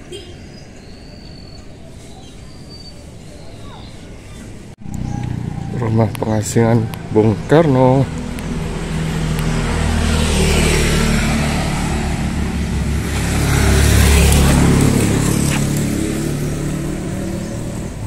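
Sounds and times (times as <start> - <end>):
vehicle engine passing: 4.1 - 18.0.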